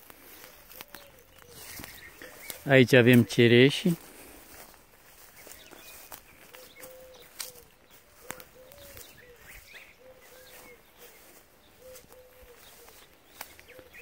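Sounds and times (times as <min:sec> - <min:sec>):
bird chirps: 0:00.0 - 0:03.9, 0:05.0 - 0:14.0
bird cooing: 0:00.2 - 0:02.6, 0:05.7 - 0:14.0.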